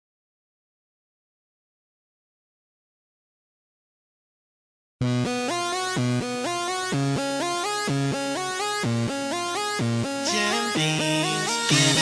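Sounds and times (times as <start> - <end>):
electronic music with synth line: 5.0 - 12.0.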